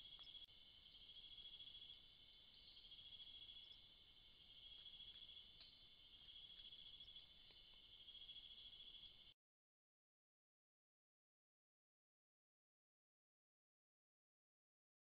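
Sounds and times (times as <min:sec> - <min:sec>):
insects trilling: 0:00.0 - 0:09.4.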